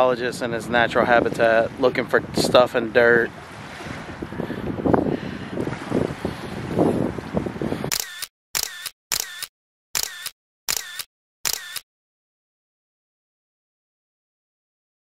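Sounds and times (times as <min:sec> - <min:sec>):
wind and surf: 0:00.0 - 0:08.1
camera shutter clicks: 0:07.9 - 0:11.8.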